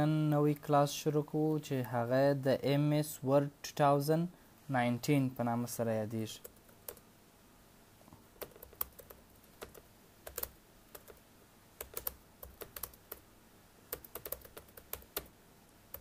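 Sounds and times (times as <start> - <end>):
computer keyboard typing: 6.4 - 7.0, 8.4 - 11.2, 11.8 - 13.2, 13.9 - 15.3.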